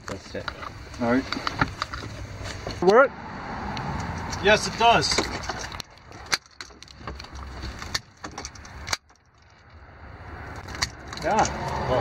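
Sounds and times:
hands handling monitor clicks: 0:05.1 - 0:09.6.

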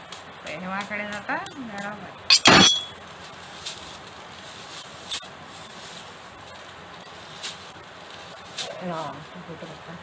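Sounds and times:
dry leaf ribs rustling and scratching: 0:03.1 - 0:10.0.

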